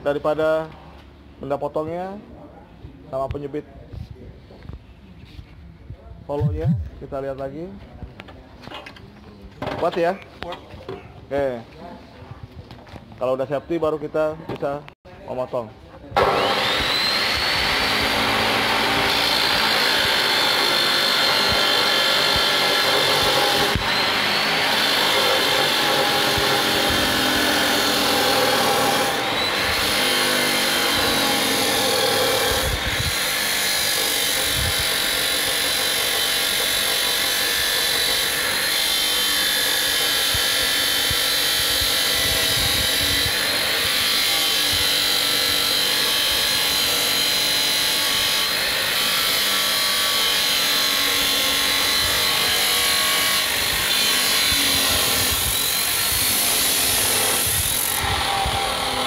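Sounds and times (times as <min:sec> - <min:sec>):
cut-off saw grinding steel: 0:16.2 - 0:59.0.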